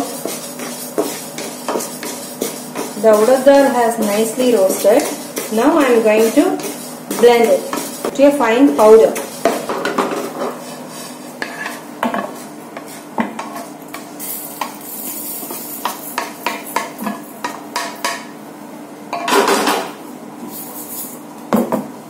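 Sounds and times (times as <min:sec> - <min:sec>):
spatula scraping frying pan: 0:00.0 - 0:17.6.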